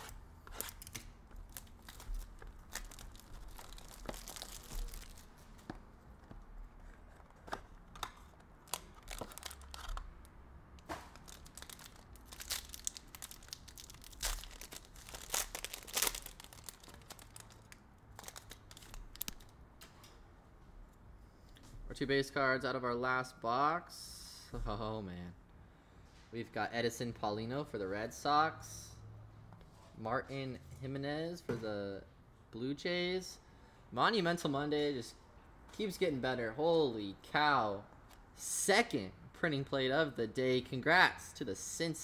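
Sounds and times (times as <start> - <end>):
foil pack crinkling and tearing: 0.6 - 5.4, 8.6 - 10.1, 11.1 - 19.5.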